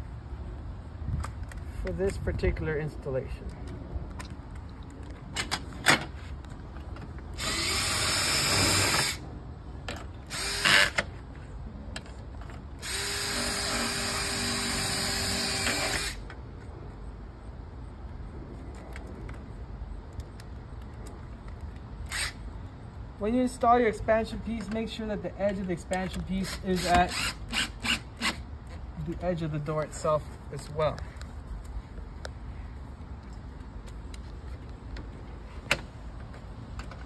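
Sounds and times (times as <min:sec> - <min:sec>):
power drill running: 0:07.4 - 0:09.2, 0:10.3 - 0:11.0, 0:12.8 - 0:16.2.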